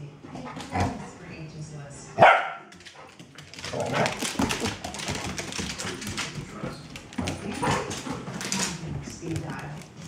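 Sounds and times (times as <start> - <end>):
dogs scuffling: 2.2 - 10.0
claws clicking on hardwood floor: 2.7 - 10.0.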